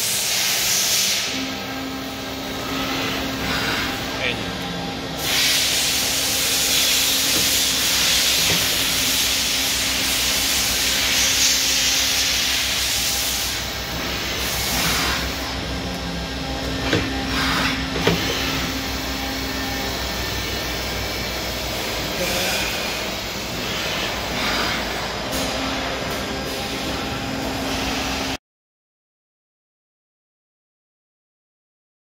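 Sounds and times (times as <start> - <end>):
machining hiss: 0.0 - 1.5, 5.2 - 15.6
machine hum: 1.2 - 28.4.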